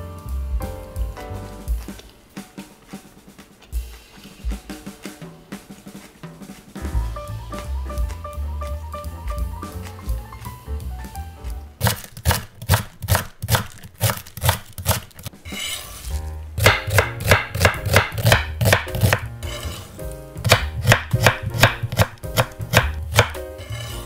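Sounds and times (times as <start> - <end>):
knife chopping on wooden board: 11.8 - 15.9, 16.6 - 24.0.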